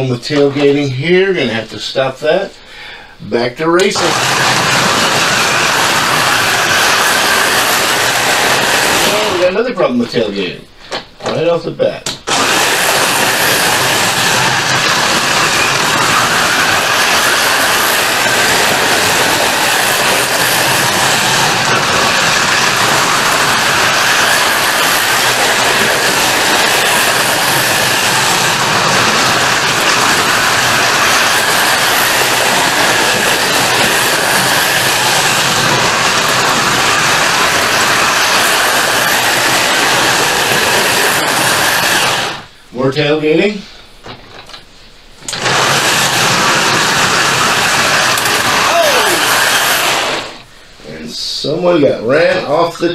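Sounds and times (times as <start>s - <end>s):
slot cars whirring: 3.8s - 9.6s, 12.3s - 42.5s, 45.2s - 50.5s.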